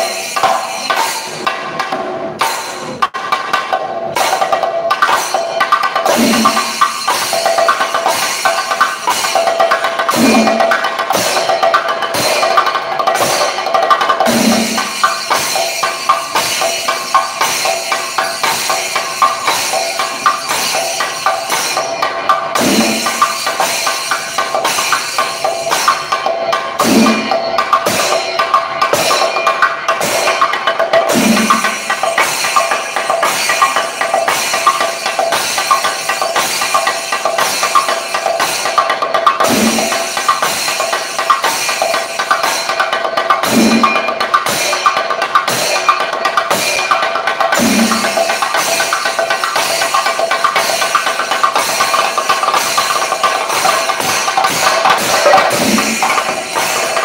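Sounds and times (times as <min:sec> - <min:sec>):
steady ringing: 0:00.0 - 0:03.0, 0:04.2 - 0:57.0
chenda drums rolling: 0:00.0 - 0:57.0
deep accented drum stroke: 0:47.6 - 0:48.2.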